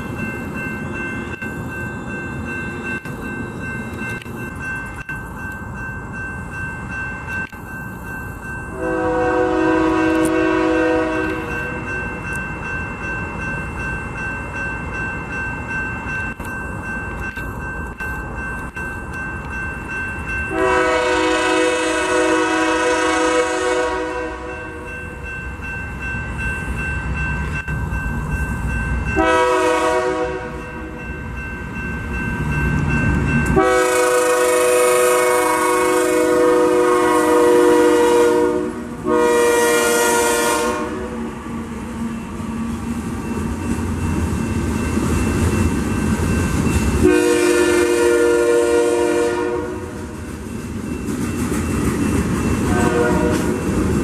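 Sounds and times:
train rumbling: 0.0s - 54.0s
locomotive horn blasts: 8.7s - 11.5s, 20.5s - 24.9s, 29.2s - 30.6s, 33.5s - 41.2s, 47.0s - 50.0s, 52.7s - 53.6s.

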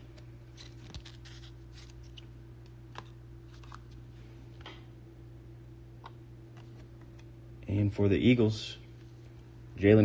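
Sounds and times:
cards clicking and rustling: 0.5s - 2.3s, 2.9s - 4.0s.

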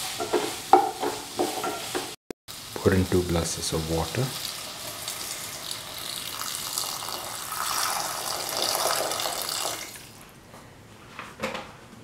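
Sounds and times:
water splashing onto frying vegetables: 2.0s - 10.2s.

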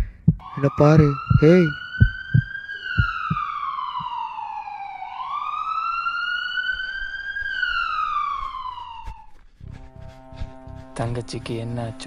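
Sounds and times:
siren wailing slowly: 0.0s - 11.1s.

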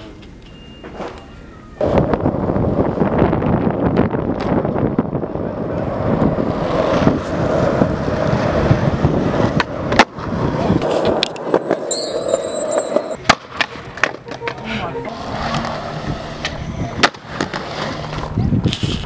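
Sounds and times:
skateboard wheels rolling on asphalt: 1.8s - 14.2s, 15.2s - 19.0s
skateboard clacks: 5.7s - 14.6s
short high-pitched tone: 11.4s - 16.5s.

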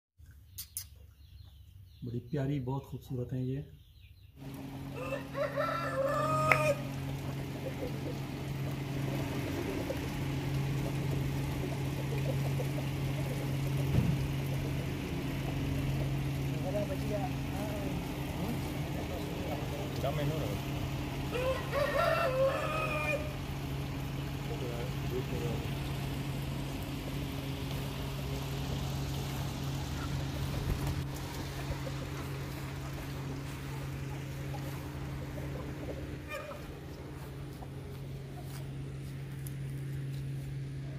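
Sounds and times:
low machine hum: 3.2s - 40.9s
thump: 13.9s - 14.2s.

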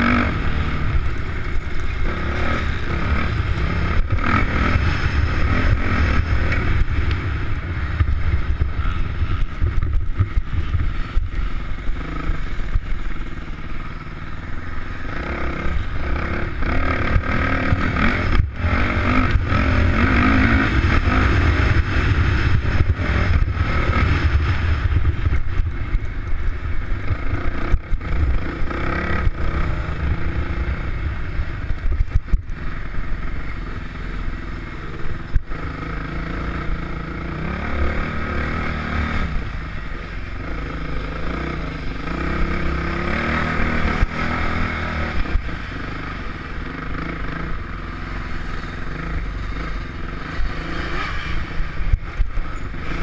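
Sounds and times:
dirt bike engine revving: 0.0s - 11.2s, 14.6s - 25.6s, 34.8s - 53.0s.

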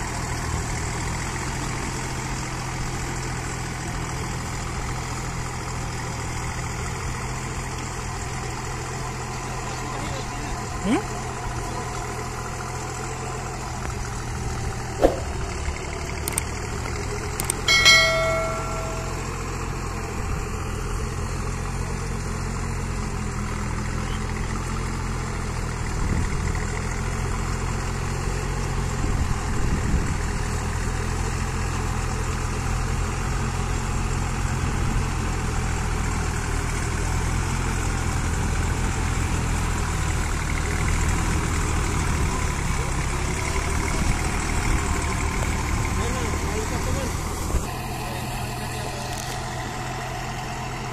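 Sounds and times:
tractor diesel engine running: 0.0s - 50.9s
sharp knock: 15.0s - 15.5s
short ringing bell-like tone: 17.7s - 19.8s.

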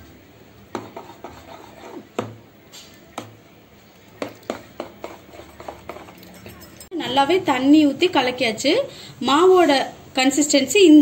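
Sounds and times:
spoon stirring thick batter: 0.6s - 6.9s
spoon clinking on dish: 4.3s - 7.1s.

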